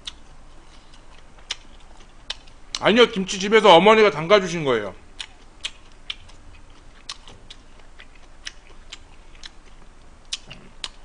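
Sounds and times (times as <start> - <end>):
person chewing food: 0.0 - 2.8, 5.1 - 11.0.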